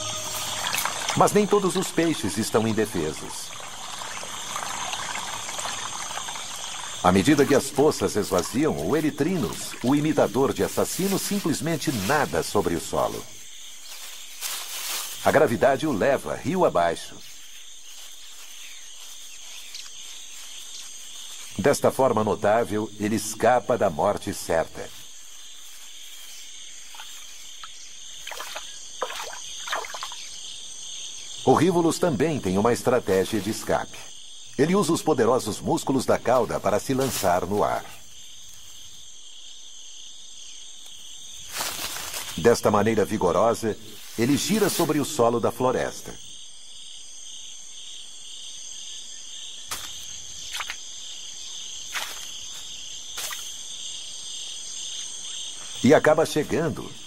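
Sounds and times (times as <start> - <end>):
crickets trilling: 0.0 - 57.0
insect chorus: 0.0 - 57.0
small wet splashes: 26.9 - 30.3, 50.4 - 50.8.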